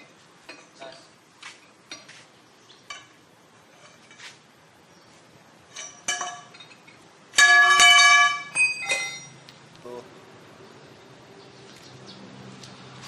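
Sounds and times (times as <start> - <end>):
metal clinks of lug wrench: 5.7 - 9.4.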